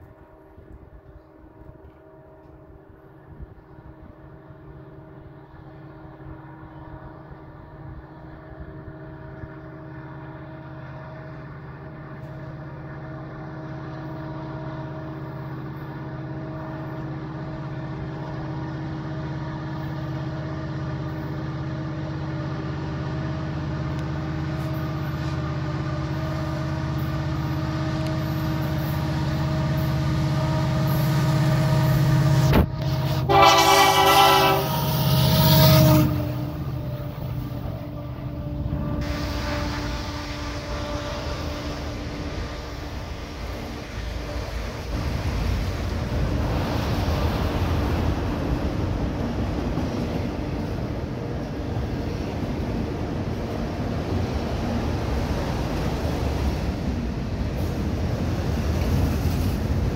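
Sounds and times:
diesel locomotive engine rumble: 0.0s - 59.9s
locomotive air horn blast: 24.6s - 45.6s.

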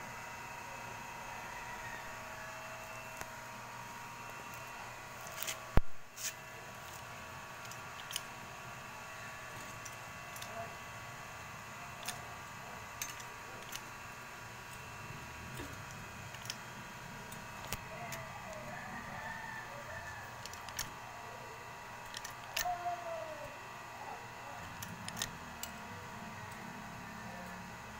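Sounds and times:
steady background hum: 0.0s - 27.9s
sharp clicks: 17.3s - 18.6s, 20.4s - 21.0s, 22.0s - 22.8s, 24.6s - 25.8s.

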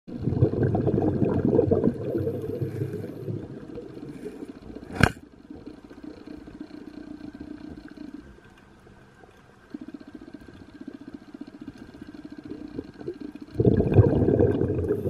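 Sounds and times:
low steady hum: 0.1s - 15.0s
underwater crackling rumble: 0.1s - 15.0s
sharp click: 4.9s - 5.2s.

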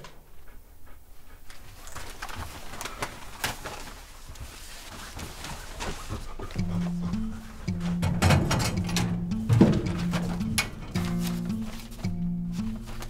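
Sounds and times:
paper rustling: 1.5s - 6.5s, 9.7s - 13.0s
metal mailbox shutting: 7.8s - 11.7s.

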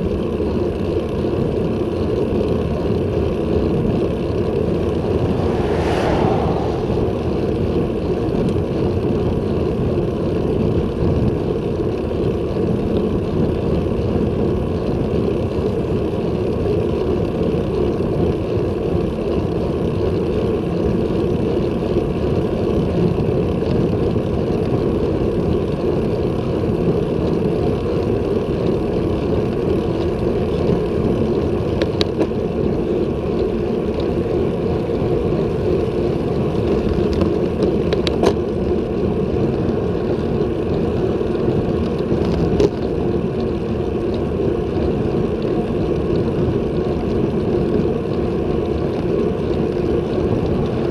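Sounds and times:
wind rushing over microphone: 4.0s - 9.6s
car passing: 4.6s - 9.0s.

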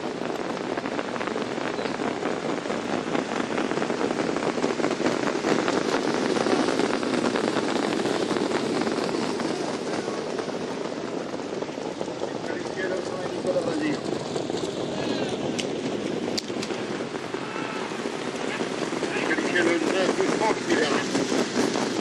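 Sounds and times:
sulky wheels rushing: 0.0s - 22.0s
many hoofbeats clattering: 8.0s - 22.0s.

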